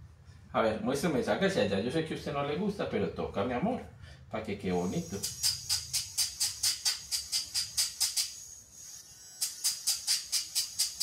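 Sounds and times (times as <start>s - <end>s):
nail file rasping on claw: 9.4s - 11.0s.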